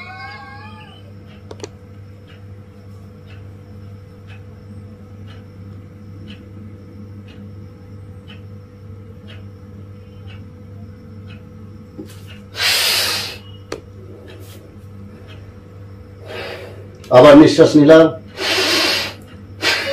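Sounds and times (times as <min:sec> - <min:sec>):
steady low hum: 0:00.0 - 0:19.9
faint ticks: 0:01.2 - 0:04.6, 0:05.2 - 0:06.6, 0:07.2 - 0:13.6, 0:15.2 - 0:17.2
man's hissing in-breath: 0:12.6 - 0:13.4, 0:18.3 - 0:19.2.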